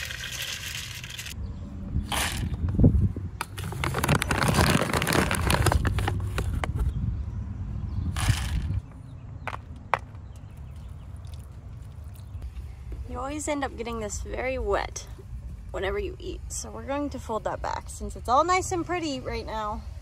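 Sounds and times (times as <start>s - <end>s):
plastic bags rustling: 3.5s - 6.6s.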